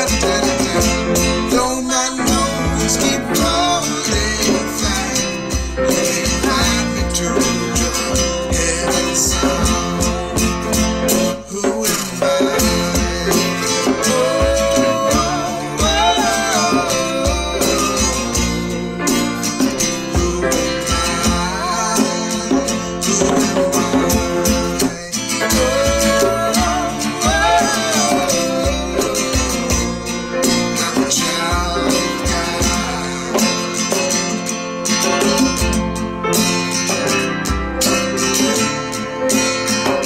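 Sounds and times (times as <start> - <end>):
hand drum: 0.0 - 40.0
piano: 0.0 - 40.0
strummed acoustic guitar: 0.0 - 40.0
woman singing: 11.6 - 19.0, 20.1 - 23.4, 24.7 - 30.2, 30.9 - 33.4.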